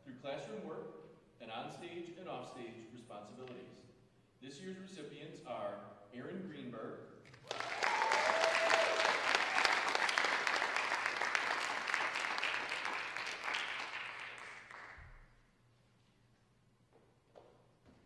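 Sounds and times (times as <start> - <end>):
audience applauding: 7.3 - 15.2.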